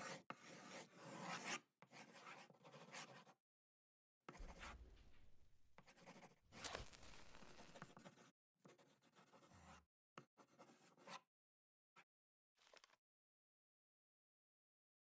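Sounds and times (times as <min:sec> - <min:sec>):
pen scratching on paper: 0:00.0 - 0:03.4, 0:04.3 - 0:05.1, 0:05.8 - 0:11.2.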